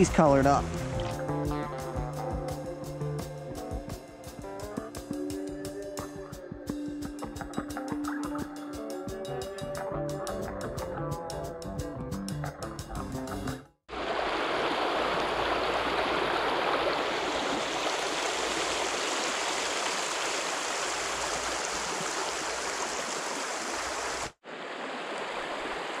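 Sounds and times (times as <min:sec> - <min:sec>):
mountain stream rushing: 0:13.9 - 0:26.0.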